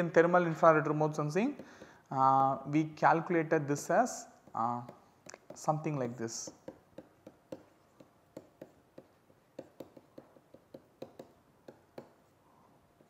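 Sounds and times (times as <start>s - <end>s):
stylus tapping on tablet screen: 4.4s - 12.3s.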